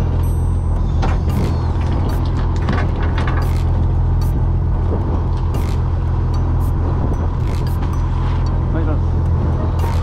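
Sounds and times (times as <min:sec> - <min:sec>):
boat engine idling: 0:00.0 - 0:10.0.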